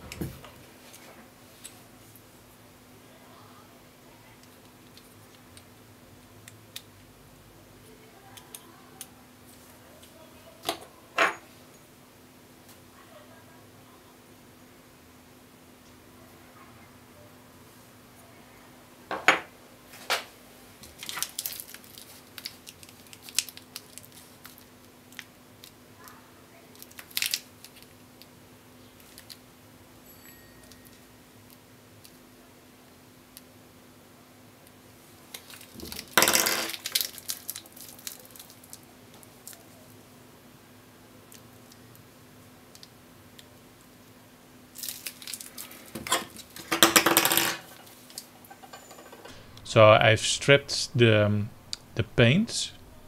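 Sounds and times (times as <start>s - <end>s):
faint steady hum: 0.0s - 53.0s
plastic bag crinkling: 20.9s - 24.7s, 35.4s - 38.8s, 44.7s - 46.6s.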